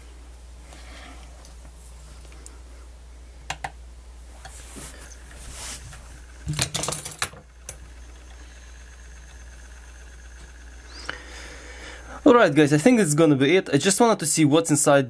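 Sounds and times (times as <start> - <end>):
steady low hum: 0.0 - 15.0
screwdrivers clicking and knocking: 6.4 - 7.8.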